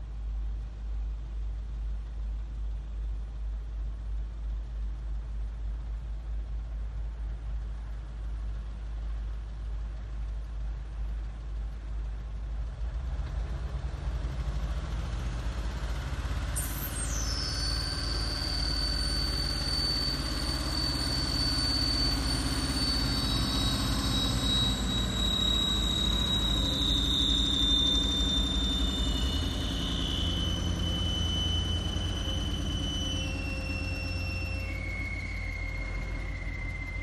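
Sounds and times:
diesel truck engine running: 8.3 - 37.0
high-pitched squeal: 14.6 - 37.0.

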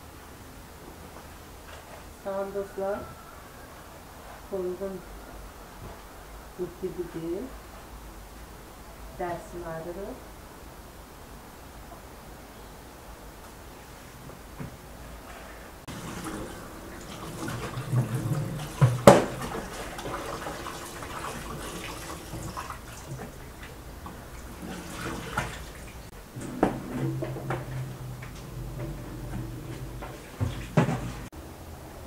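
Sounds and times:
chicken rubbed by hand in water: 15.9 - 26.1
tap water running and splashing: 15.9 - 29.0, 29.8 - 31.3.

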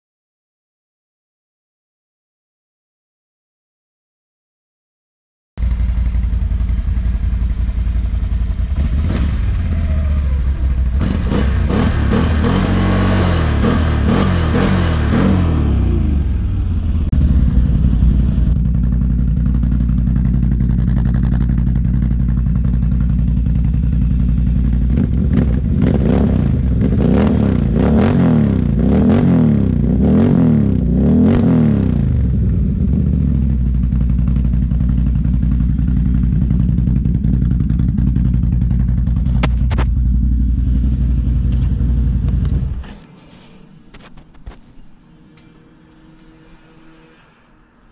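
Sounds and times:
quad engine idling and revving: 5.6 - 43.1.

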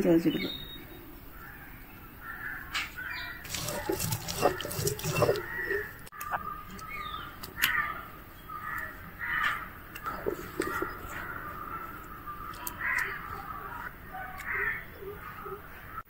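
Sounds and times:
crows cawing: 1.4 - 15.2
stone roller grinding on stone: 3.5 - 5.9.

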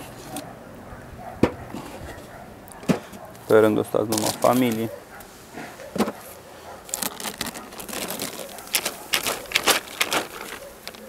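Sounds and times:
plastic sheet crinkling: 6.8 - 11.0.

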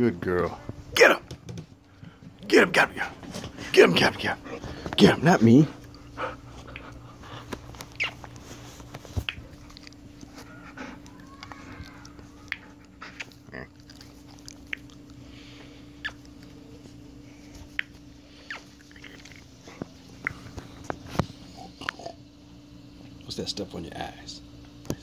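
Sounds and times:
steady low hum: 0.0 - 25.0
dog mouth smacks and clicks: 6.7 - 10.3, 12.5 - 15.2.

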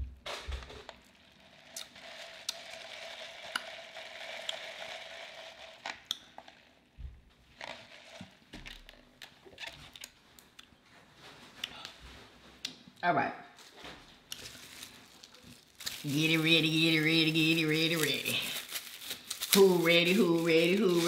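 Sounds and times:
sucking drink through a straw: 1.3 - 6.6, 7.6 - 10.2
small clicks and mouth sounds: 1.7 - 2.8, 5.8 - 6.6, 8.2 - 10.8.

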